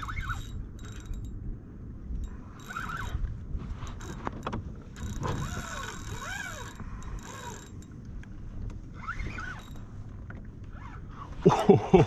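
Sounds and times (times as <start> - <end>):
fishing reel gears whirring: 0.0 - 1.4, 2.2 - 8.0, 8.9 - 9.9.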